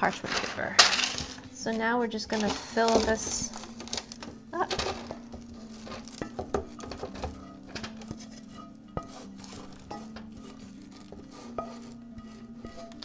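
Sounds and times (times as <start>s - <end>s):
soft background music: 0.0s - 13.0s
spatula scraping skillet: 0.0s - 13.0s
spatula knocking on pan: 4.7s - 8.1s, 8.9s - 13.0s.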